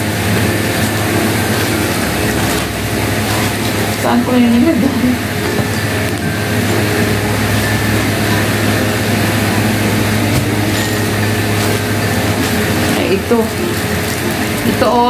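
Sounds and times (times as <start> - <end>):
low motor hum: 0.0 - 15.0
packaging rustling: 8.4 - 14.8.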